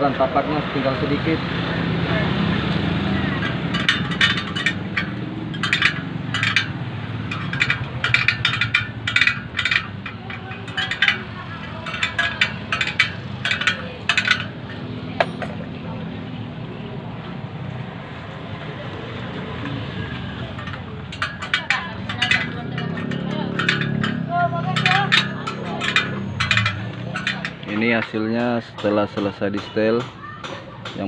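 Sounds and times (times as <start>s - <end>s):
metallic spoke clicks: 3.3s - 15.5s, 19.6s - 30.1s.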